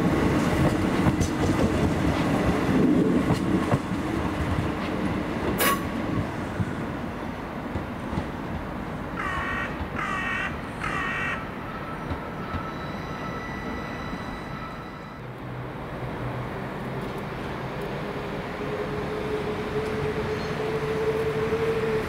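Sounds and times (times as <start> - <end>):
train rumble: 0.0 - 22.0
crow cawing: 9.2 - 11.5.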